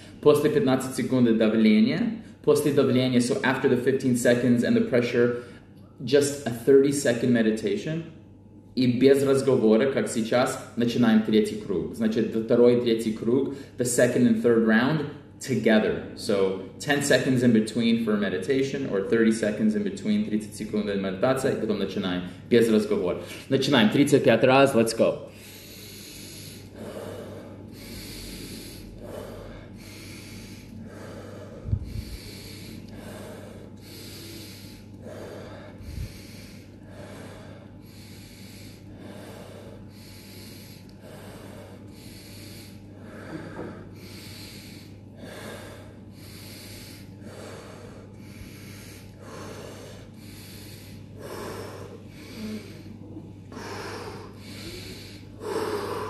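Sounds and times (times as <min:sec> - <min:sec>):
man breathing forcefully: 0:00.0 - 0:00.2, 0:25.2 - 0:56.0
steady low hum: 0:00.0 - 0:56.0.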